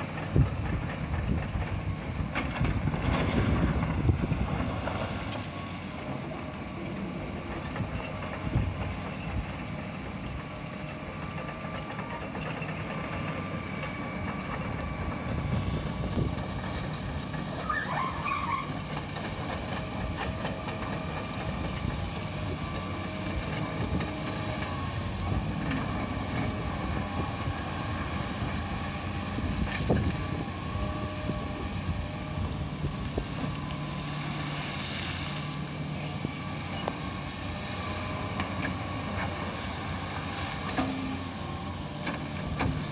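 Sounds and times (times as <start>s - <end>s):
excavator diesel engine running: 0.0s - 42.9s.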